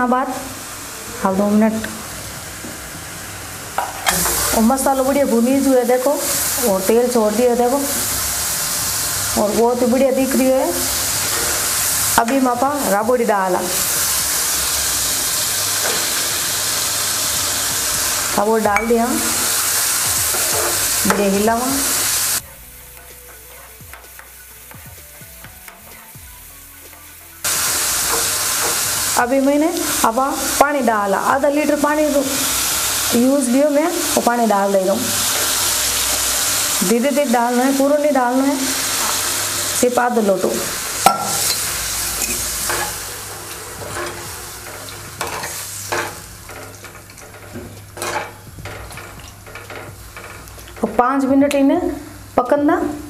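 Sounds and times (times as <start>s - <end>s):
sizzling hiss: 0.0s - 53.0s
steel ladle scraping a pan: 10.3s - 12.4s, 13.5s - 24.3s, 27.5s - 29.2s, 41.0s - 51.0s
spoon stirring in a pan: 41.0s - 51.6s.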